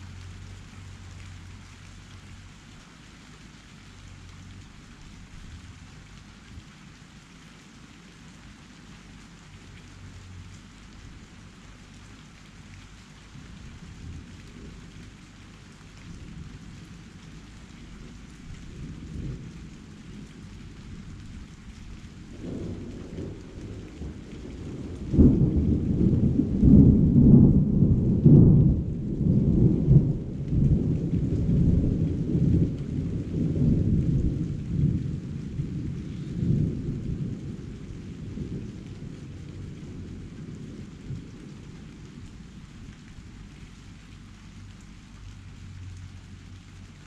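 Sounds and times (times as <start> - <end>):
steady rain: 0.0 - 47.0
thunder rumbling: 17.8 - 43.3.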